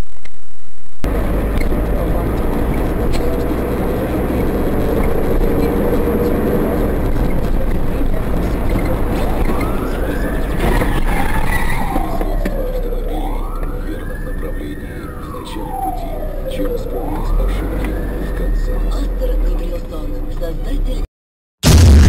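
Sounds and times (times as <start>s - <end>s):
car interior road and engine noise: 0.0s - 21.1s
vehicles crashing: 1.0s - 20.1s
siren wailing: 8.3s - 19.9s.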